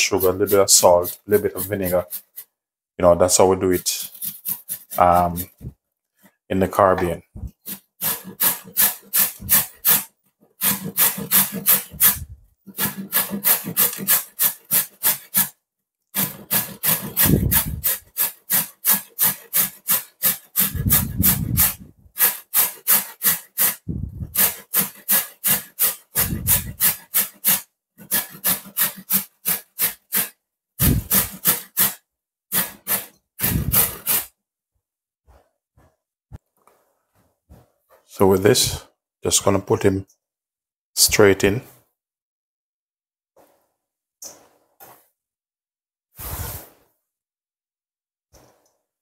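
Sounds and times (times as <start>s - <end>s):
carrot grated on metal grater: 0.0s - 2.5s, 3.8s - 5.6s, 7.6s - 15.5s, 16.2s - 34.3s.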